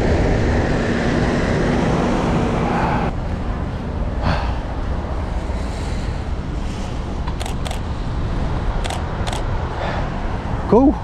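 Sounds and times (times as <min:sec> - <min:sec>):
traffic on wet road: 0:00.0 - 0:11.0
wind on microphone: 0:00.0 - 0:11.0
camera shutter clicks: 0:07.4 - 0:07.9, 0:08.8 - 0:09.5.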